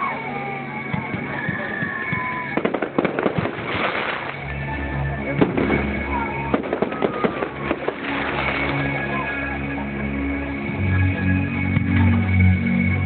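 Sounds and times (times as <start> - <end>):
fireworks bangs and crackling: 0.8 - 9.5
music with low bass: 2.5 - 13.0.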